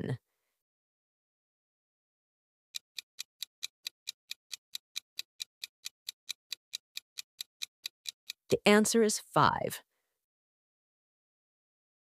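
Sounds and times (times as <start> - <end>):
clock ticking quickly: 2.8 - 8.5.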